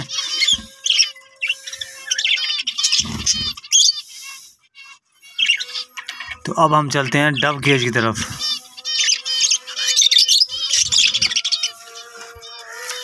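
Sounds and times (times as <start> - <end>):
budgerigars chirping: 0.0 - 4.6, 5.2 - 13.0.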